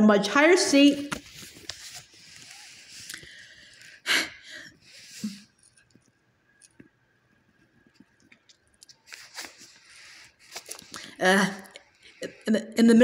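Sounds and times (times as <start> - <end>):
book page turning: 1.0 - 3.7, 8.8 - 11.1.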